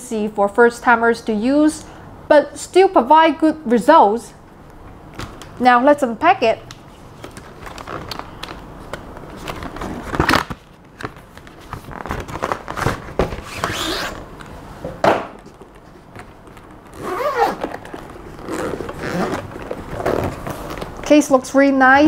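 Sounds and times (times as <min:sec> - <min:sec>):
cardboard rustling and scraping: 0:07.1 - 0:14.3, 0:16.2 - 0:21.0.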